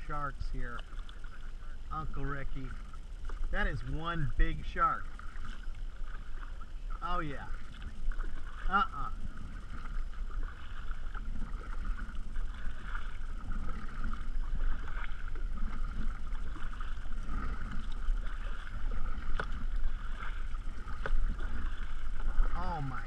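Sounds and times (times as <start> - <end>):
water lapping against kayak hull: 0.0 - 23.0.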